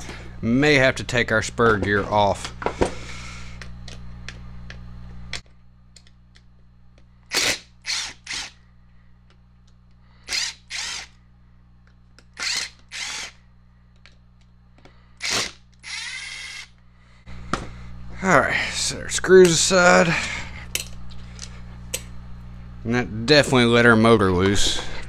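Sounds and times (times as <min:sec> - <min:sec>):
cordless driver bursts: 0:07.3 - 0:08.6, 0:10.2 - 0:11.2, 0:12.4 - 0:13.4, 0:15.2 - 0:16.7.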